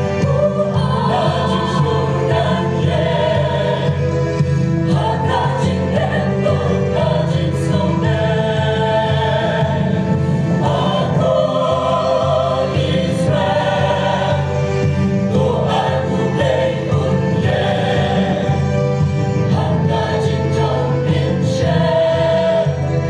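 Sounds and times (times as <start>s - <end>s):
mixed choir singing a hymn: 0.0s - 23.0s.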